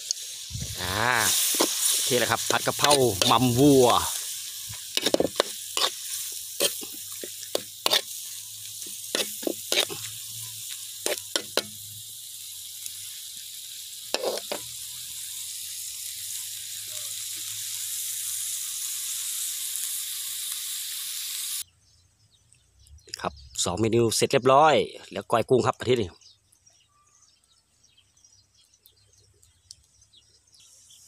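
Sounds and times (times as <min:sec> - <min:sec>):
food sizzling in a wok: 0:00.0 - 0:21.7
metal ladle scraping a pan: 0:01.2 - 0:11.9, 0:14.1 - 0:14.9.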